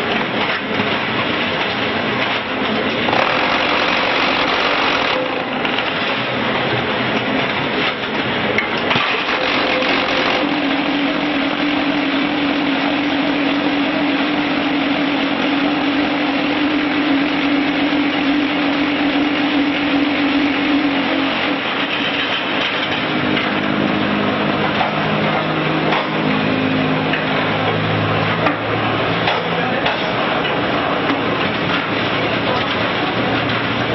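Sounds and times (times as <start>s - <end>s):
machine clattering: 0.0s - 23.7s
machine humming: 0.1s - 29.2s.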